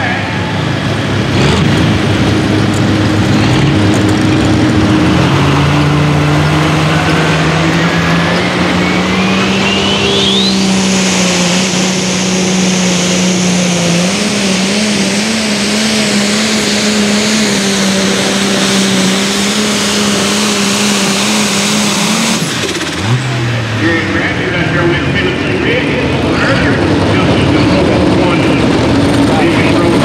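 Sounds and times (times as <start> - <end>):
diesel engine under full load: 0.0 - 30.0
turbo whistle rising: 7.0 - 14.1.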